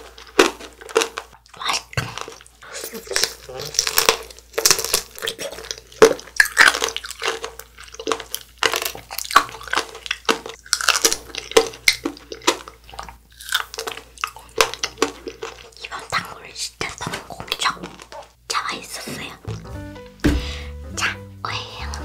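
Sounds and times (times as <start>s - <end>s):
wet squishy bites and chewing: 0.0s - 16.2s.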